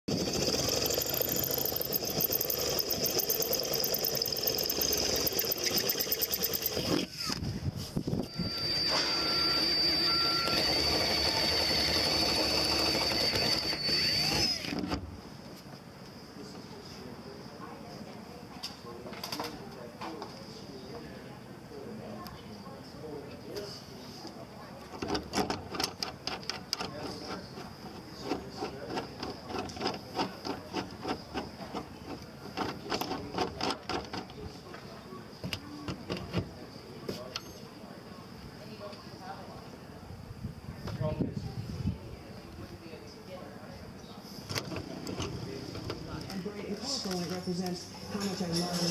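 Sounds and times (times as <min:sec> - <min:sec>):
cordless drill drilling into metal: 0:00.1 - 0:07.4, 0:08.2 - 0:15.0.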